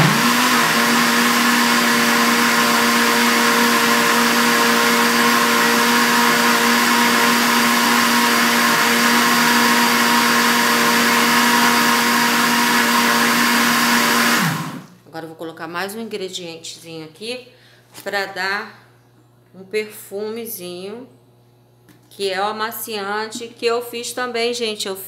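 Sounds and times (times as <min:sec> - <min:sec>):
electric blender running: 0:00.0 - 0:14.9.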